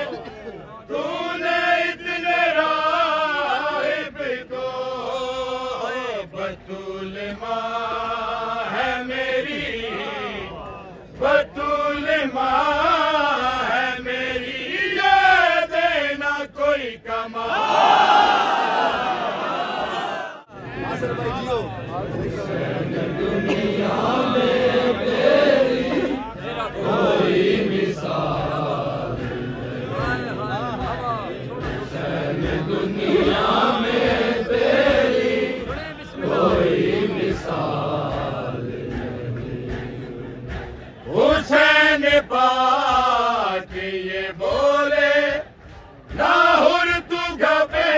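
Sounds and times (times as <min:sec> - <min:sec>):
men chanting devotional poem: 0:00.0 - 0:47.9
man chanting devotional verse: 0:29.8 - 0:32.6.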